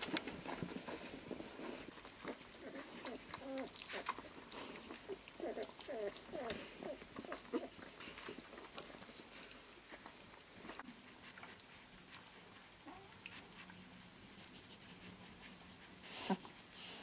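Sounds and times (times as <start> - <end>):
puppies squeaking and whimpering: 0.3 - 7.9.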